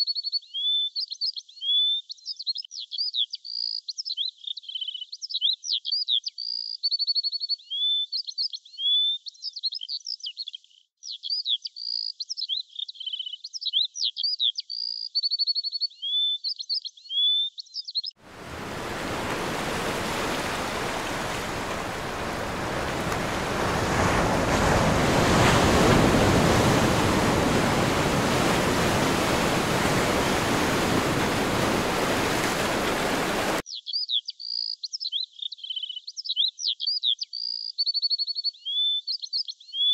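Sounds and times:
small birds chirping: 0.0s - 23.8s, 26.8s - 39.9s
ocean surf rushing: 18.2s - 33.6s.

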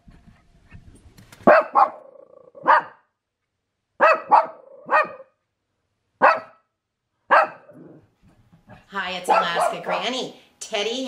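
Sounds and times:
dog barking: 1.4s - 3.0s, 4.0s - 5.4s, 6.2s - 6.7s, 7.3s - 8.0s, 9.3s - 10.2s.

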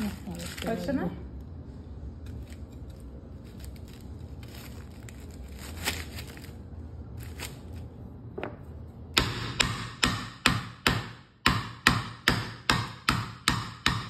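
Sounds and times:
plastic crinkling: 0.0s - 1.1s, 2.2s - 8.1s
cleaver chopping on wooden board: 9.2s - 14.0s.

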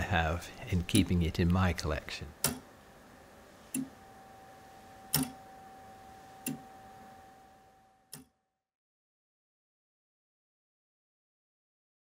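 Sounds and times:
faint steady ringing tone: 2.6s - 8.4s
clock ticking slowly: 3.7s - 4.1s, 5.0s - 5.6s, 6.4s - 6.8s.

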